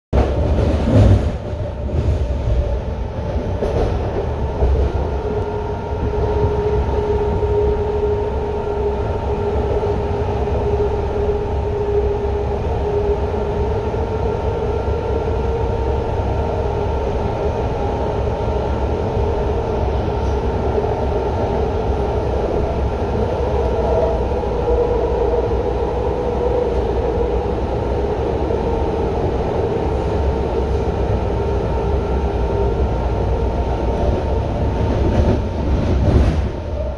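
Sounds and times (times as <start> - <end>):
train wheels rumbling on rails: 0.1 - 36.9.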